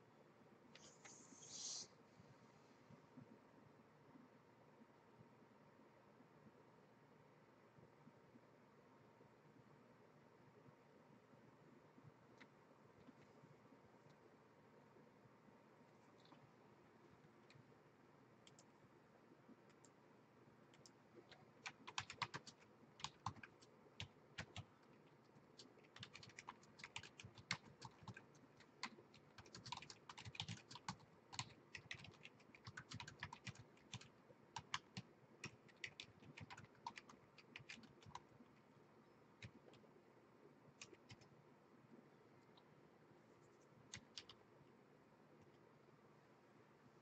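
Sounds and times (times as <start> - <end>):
typing on computer keyboard: 20.7 - 24.8, 25.6 - 38.3, 39.4 - 39.8, 40.8 - 41.3, 43.9 - 44.4.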